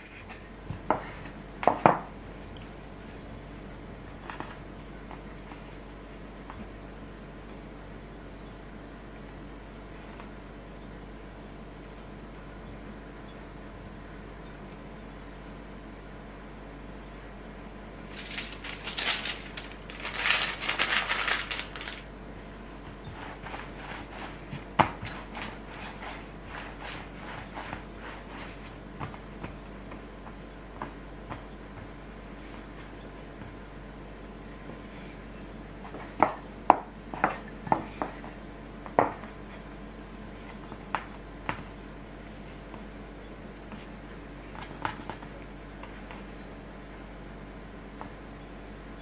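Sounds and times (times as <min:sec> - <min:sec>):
hands working dough on wood: 0:00.0 - 0:03.3, 0:22.8 - 0:33.7, 0:34.7 - 0:43.0.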